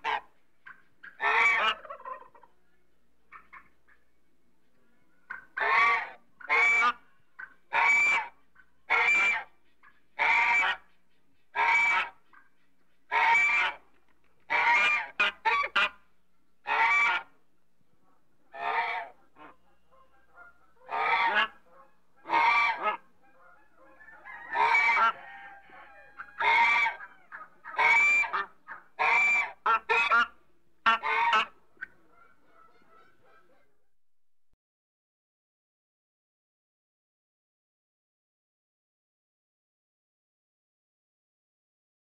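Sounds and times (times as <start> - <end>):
geese honking: 0.0 - 2.5, 5.3 - 12.5, 13.1 - 13.8, 14.5 - 16.0, 16.6 - 17.4, 18.5 - 33.7.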